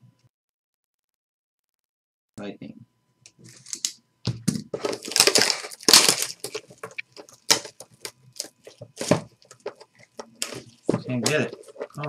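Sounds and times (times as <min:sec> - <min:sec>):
plastic wrap crinkling: 0:04.7 - 0:12.0.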